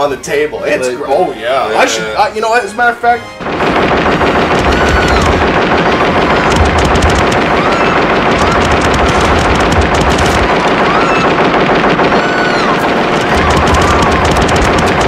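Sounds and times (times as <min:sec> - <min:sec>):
rapid automatic cannon fire: 0:03.4 - 0:15.0.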